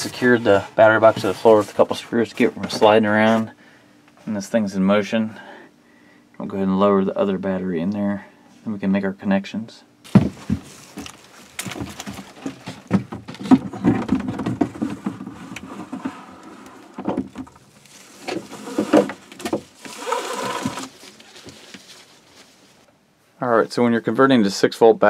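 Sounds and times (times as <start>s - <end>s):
scraping and rustling: 0.0s - 3.6s, 10.1s - 22.9s.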